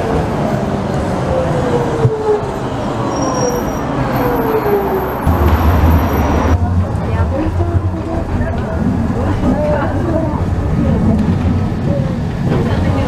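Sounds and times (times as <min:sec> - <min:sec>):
wheels rumbling: 0:00.0 - 0:13.0
loud low rumble: 0:05.2 - 0:11.6.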